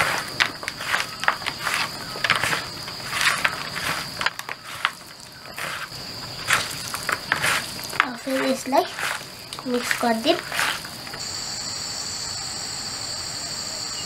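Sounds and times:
hands squishing raw minced meat: 0:00.0 - 0:11.2
meat scraping bamboo weave clicks: 0:00.0 - 0:11.2.

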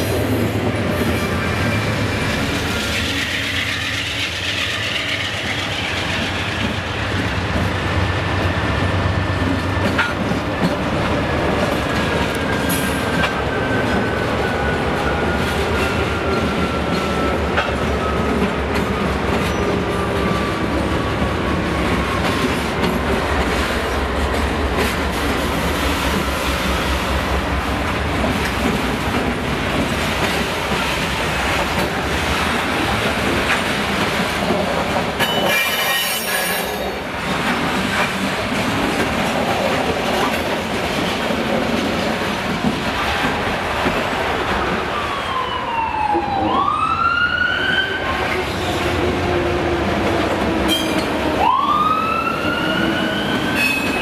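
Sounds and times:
diesel locomotive engines: 0:00.0 - 0:54.0
train wheels clacking on rail joints: 0:09.4 - 0:14.2, 0:15.0 - 0:44.8.

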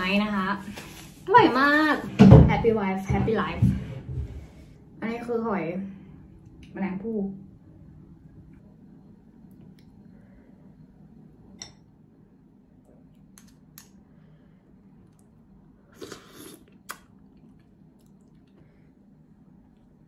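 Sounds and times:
low background hum: 0:00.0 - 0:20.0.

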